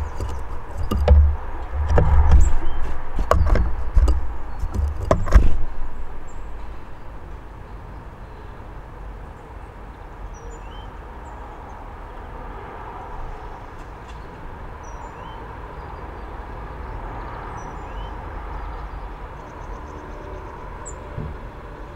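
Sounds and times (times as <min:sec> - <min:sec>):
distant traffic rumble: 0:00.0 - 0:21.9.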